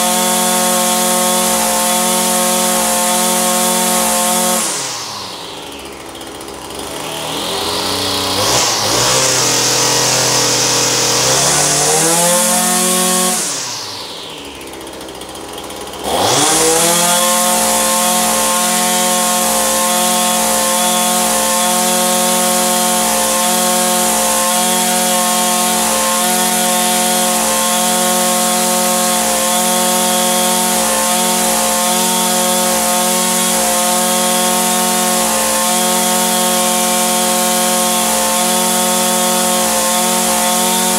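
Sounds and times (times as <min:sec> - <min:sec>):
string trimmer engine revving: 0:00.0 - 0:40.9.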